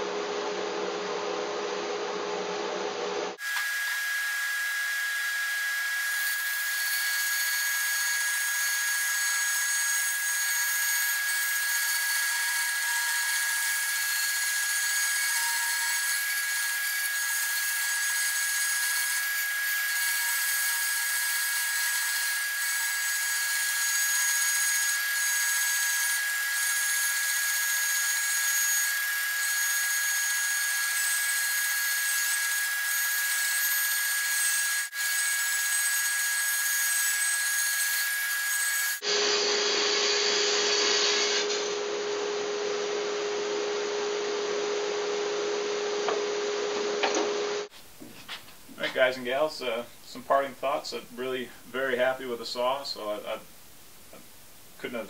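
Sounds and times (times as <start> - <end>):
band saw cutting wood: 3.4 - 41.7.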